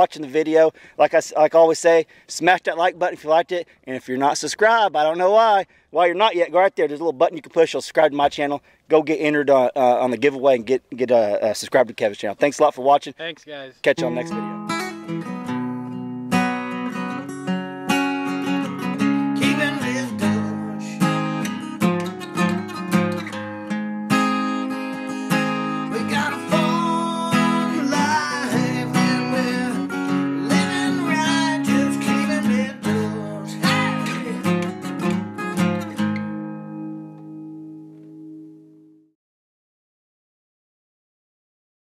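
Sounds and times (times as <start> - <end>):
acoustic guitar music: 13.9 - 39.1.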